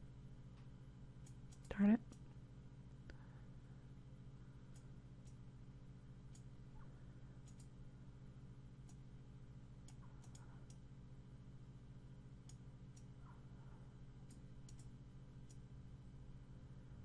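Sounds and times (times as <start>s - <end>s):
low steady hum: 0.0s - 17.0s
computer mouse clicks: 1.2s - 2.3s, 7.4s - 7.8s, 8.8s - 9.0s, 9.8s - 10.8s, 12.4s - 13.1s, 14.2s - 15.6s.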